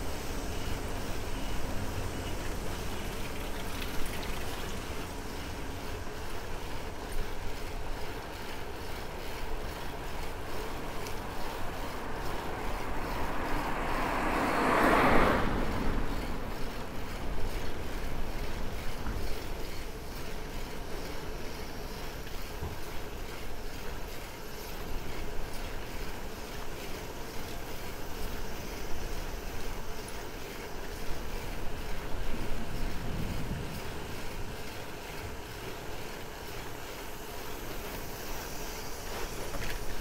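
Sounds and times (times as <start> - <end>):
car passing by: 0.0 - 6.4, 10.2 - 19.4
road rumble: 0.0 - 40.0
wind noise: 31.6 - 35.4.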